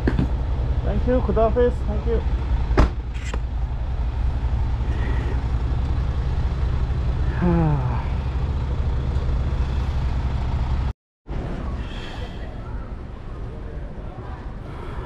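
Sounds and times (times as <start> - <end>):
idling vehicle engines: 0.0 - 10.9, 11.6 - 15.0
street traffic rumble: 0.0 - 15.0
person calling out: 7.3 - 8.2.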